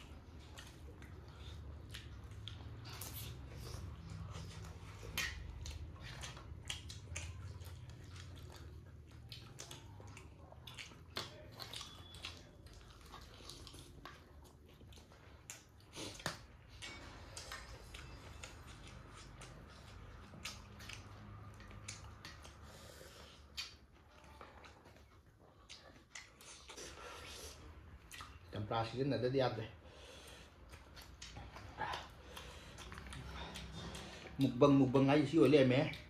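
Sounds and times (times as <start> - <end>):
faint low hum: 0.0 - 36.0
person chewing food: 0.0 - 36.0.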